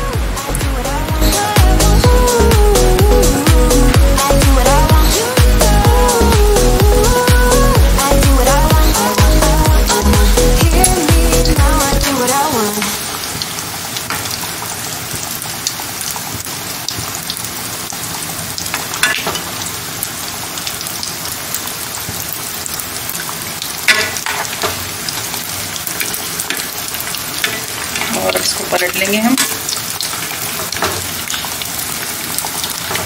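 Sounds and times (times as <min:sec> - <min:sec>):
patties deep-frying in oil: 0:03.3 - 0:33.0
oil popping and crackling: 0:07.2 - 0:33.0.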